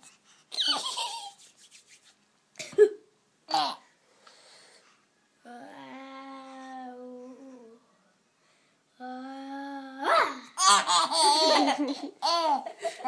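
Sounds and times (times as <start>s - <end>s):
baby laughing: 0.5s - 1.4s, 10.6s - 13.0s.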